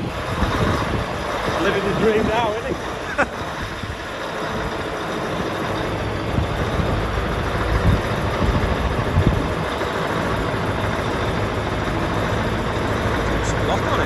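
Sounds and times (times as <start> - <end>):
diesel tractor engine idling: 0.0 - 14.0.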